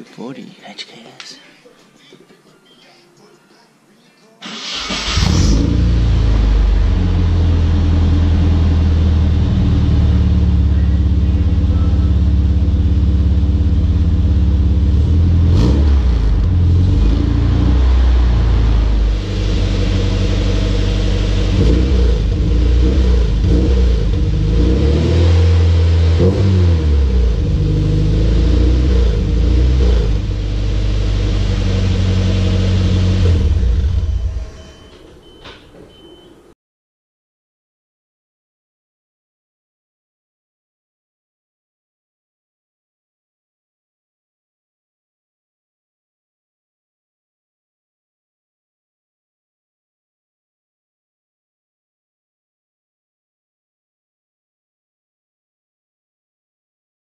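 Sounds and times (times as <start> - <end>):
car engine idling and revving: 5.0 - 34.8.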